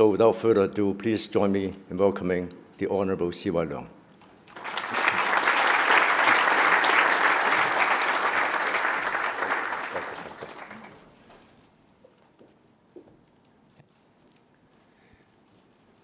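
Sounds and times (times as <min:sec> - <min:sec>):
audience applauding: 0:04.5 - 0:11.2.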